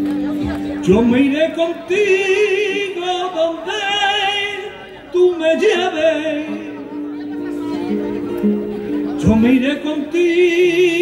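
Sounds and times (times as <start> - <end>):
person singing with vibrato: 0.7 - 7.2, 9.0 - 11.0.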